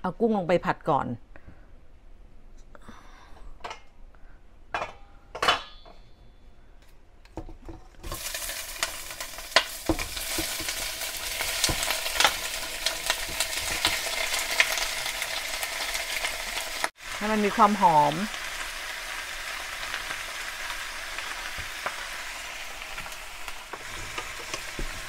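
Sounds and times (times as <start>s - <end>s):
oil sizzling and spitting: 8.0s - 25.0s
wooden spoon scraping pan: 23.7s - 25.0s.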